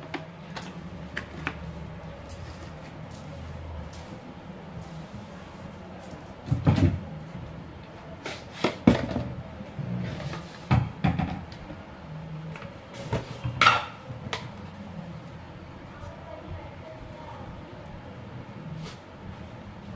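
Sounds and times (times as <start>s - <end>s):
kitchen items knocking and clunking: 6.4s - 7.0s, 8.6s - 9.4s, 10.2s - 11.6s, 13.0s - 14.4s.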